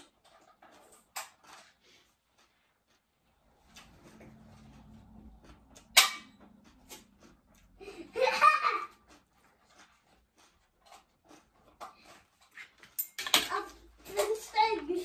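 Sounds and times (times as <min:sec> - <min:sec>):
clicks and rustles of eating: 0:00.0 - 0:15.0
child laughing: 0:07.8 - 0:09.1.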